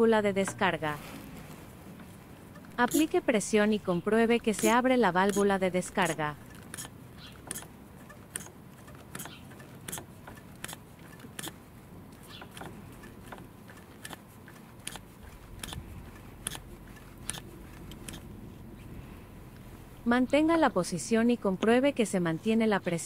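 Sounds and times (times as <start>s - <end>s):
hand pressure pump clicking: 2.4s - 3.4s, 4.3s - 18.6s.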